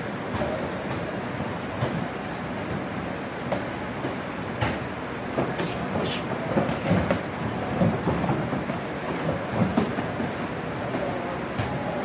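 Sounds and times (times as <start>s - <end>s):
steady rumbling background noise: 0.0s - 12.0s
feet on ring canvas: 0.3s - 11.9s.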